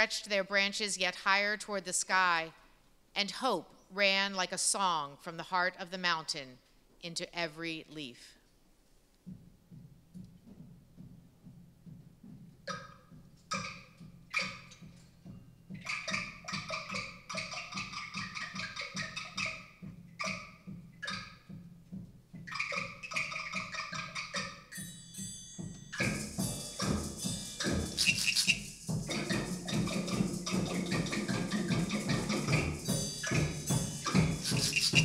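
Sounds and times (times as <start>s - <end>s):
pitched percussion ensemble music: 22.5s - 35.0s
high metallic shimmer: 24.8s - 29.1s
steady low beat: 25.2s - 35.0s.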